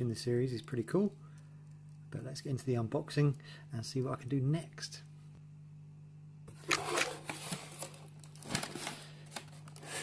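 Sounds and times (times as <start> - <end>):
cardboard box rustling and scraping: 6.6 - 9.0.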